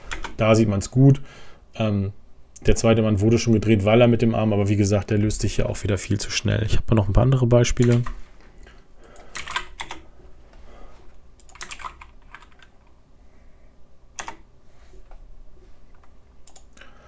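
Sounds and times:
keyboard keys clicking: 0:09.1 - 0:10.0, 0:11.4 - 0:12.9, 0:14.2 - 0:14.5, 0:15.9 - 0:16.8.

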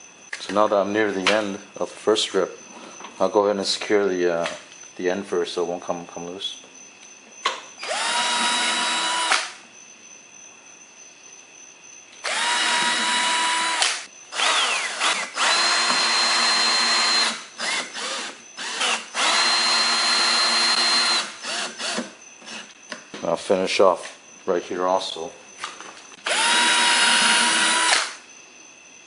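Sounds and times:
cordless drill whining: 0:07.8 - 0:09.6, 0:12.2 - 0:22.7, 0:26.2 - 0:28.2.

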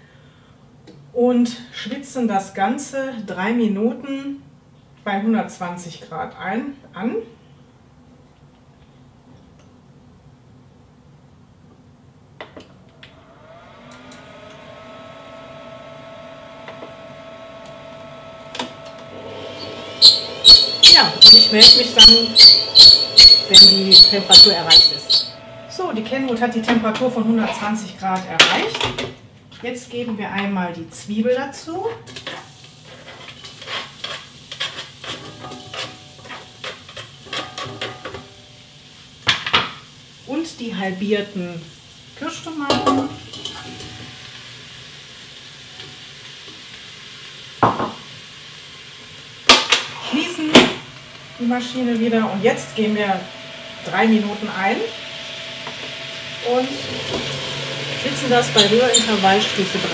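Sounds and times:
kitchen machine whine and hum: 0:12.2 - 0:59.9
onion sizzling in oil: 0:19.4 - 0:25.4, 0:32.2 - 0:59.9
spatula scraping a steel bowl: 0:20.0 - 0:25.3, 0:32.9 - 0:37.6, 0:58.0 - 0:59.5.

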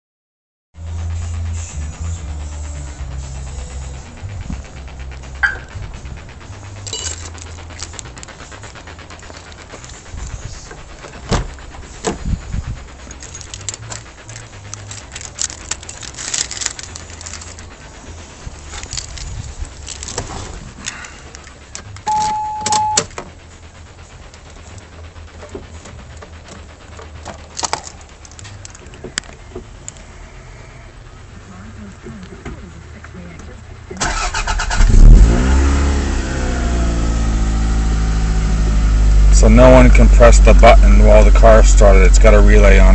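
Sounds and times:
electronic beep: 0:03.6 - 0:07.2, 0:22.0 - 0:23.1
car key jingling: 0:21.8 - 0:23.2, 0:34.0 - 0:34.7.

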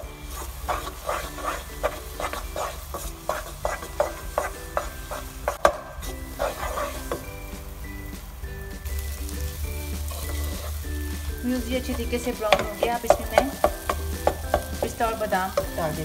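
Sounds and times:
spatula scraping a frying pan: 0:00.0 - 0:07.4, 0:09.5 - 0:14.7
spatula knocking the pan: 0:00.7 - 0:07.3, 0:11.6 - 0:16.0.

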